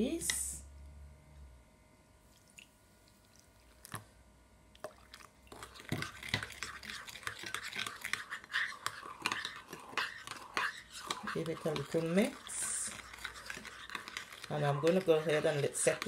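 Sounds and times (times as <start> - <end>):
spoon stirring against glass: 5.5 - 16.0.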